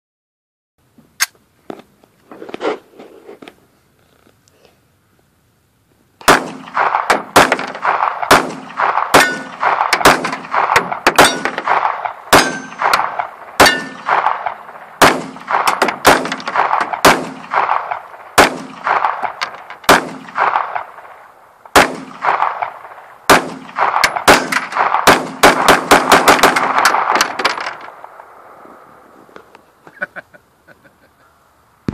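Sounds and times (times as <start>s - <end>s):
pistol shots with ringing echo: 6.2s - 28.6s.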